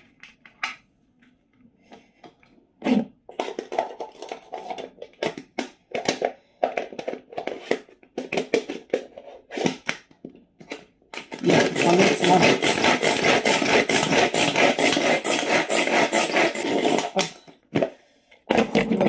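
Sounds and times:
plastic lid clicking and rattling: 3.3s - 12.0s.

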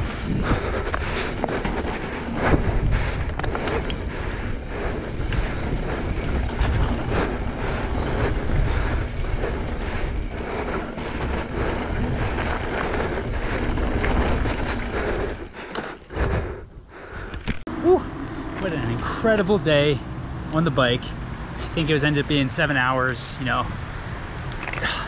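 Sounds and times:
bike clattering over bumps: 0.0s - 19.0s
tyres rumbling over dirt: 0.0s - 20.0s
wind buffeting microphone: 0.0s - 20.5s.

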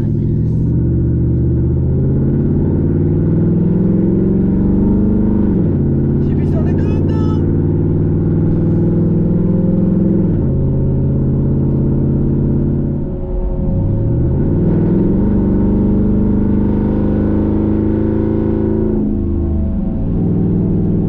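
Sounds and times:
car engine exhaust revving: 0.0s - 21.0s.

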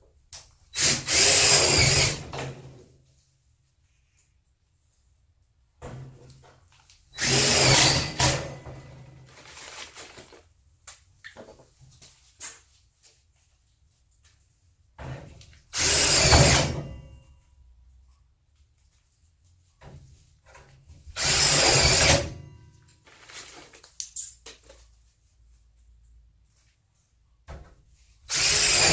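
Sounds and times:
cordless drill running: 0.8s - 2.2s, 7.2s - 8.3s, 15.8s - 16.6s, 21.2s - 22.3s, 28.3s - 28.9s.

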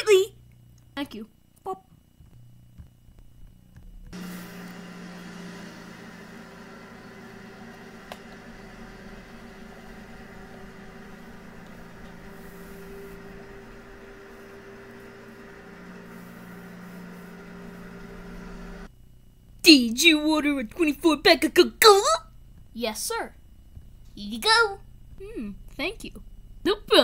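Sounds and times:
vehicle engine hum: 4.2s - 18.9s.

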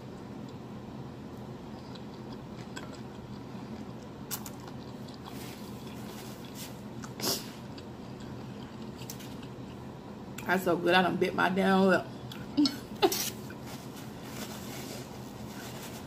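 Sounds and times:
steady low hum: 0.0s - 16.0s
chewing and mouth smacking: 1.7s - 9.9s.

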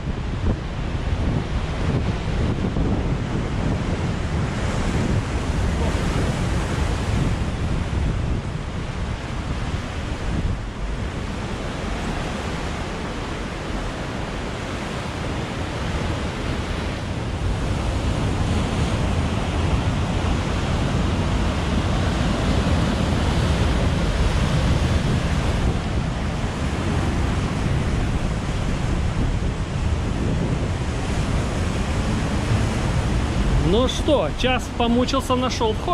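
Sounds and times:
surf: 0.0s - 35.9s
wind buffeting microphone: 0.0s - 35.9s.

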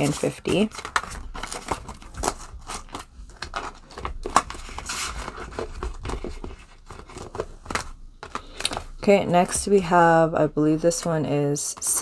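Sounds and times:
banknotes crinkling: 0.0s - 9.0s.

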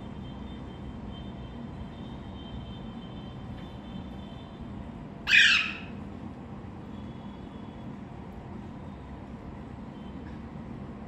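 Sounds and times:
low background hum: 0.0s - 11.0s
parakeet squawk: 5.2s - 6.0s.

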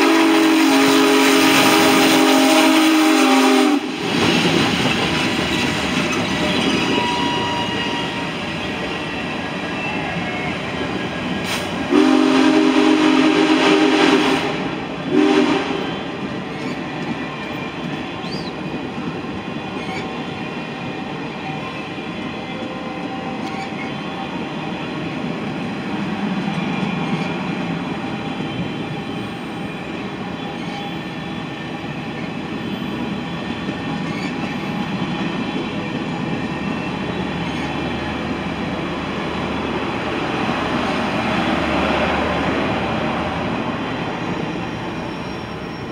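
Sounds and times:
locomotive horn blasts: 0.0s - 4.0s, 11.9s - 16.3s
train wheels rolling on rails: 0.0s - 45.9s.

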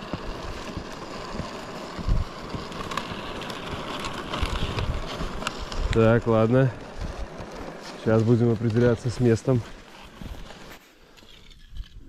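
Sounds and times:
wind rushing over microphone: 2.0s - 2.4s, 4.4s - 7.4s.

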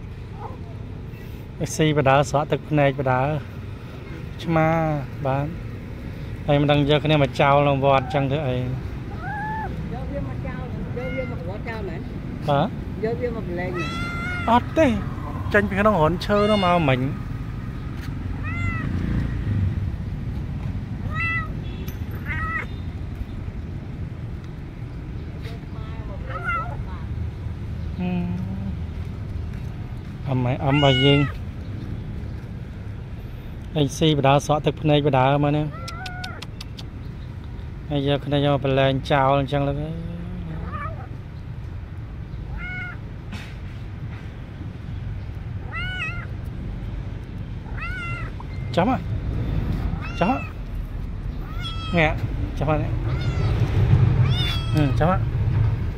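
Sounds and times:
kitten mewing: 10.8s - 11.6s, 13.7s - 14.7s, 16.2s - 17.1s, 18.4s - 19.0s, 21.0s - 21.6s, 22.2s - 22.7s, 26.2s - 27.1s, 30.6s - 31.4s, 35.7s - 36.9s, 40.5s - 41.1s, 42.5s - 43.0s, 45.6s - 46.3s, 47.6s - 48.4s, 49.9s - 50.6s, 51.4s - 52.0s, 52.9s - 55.0s.

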